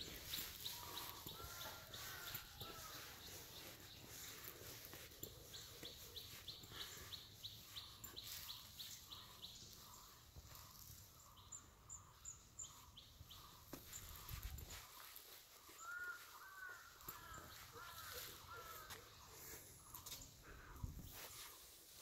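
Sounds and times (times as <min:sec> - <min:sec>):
bird chirping: 0:00.0 - 0:20.8.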